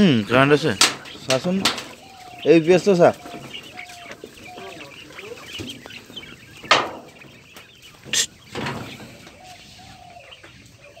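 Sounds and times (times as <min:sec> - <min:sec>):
young quail chirping: 0:00.0 - 0:11.0.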